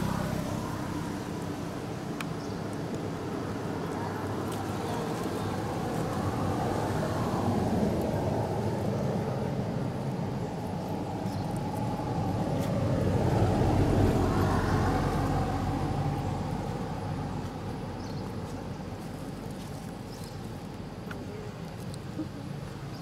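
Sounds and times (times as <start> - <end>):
vehicle engine passing by: 0.0 - 2.5, 4.3 - 18.8.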